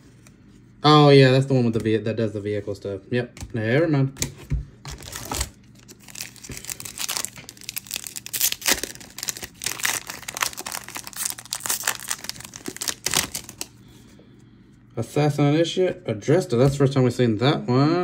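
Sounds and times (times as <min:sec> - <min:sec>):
foil wrapper tearing and crinkling: 0:04.9 - 0:13.7.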